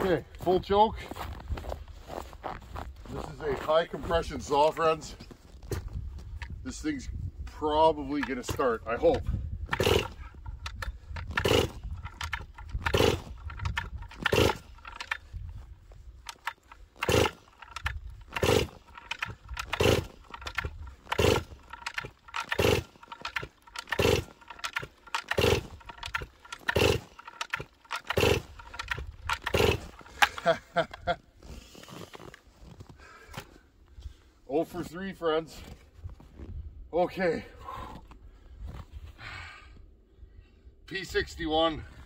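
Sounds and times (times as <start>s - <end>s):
chainsaw starter rope pulls: 7.5s - 32.8s.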